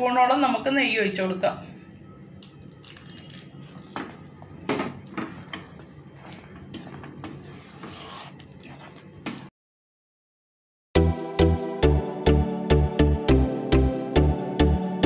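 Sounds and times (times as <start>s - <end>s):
wooden spatula scraping a pan: 4.7s - 9.5s.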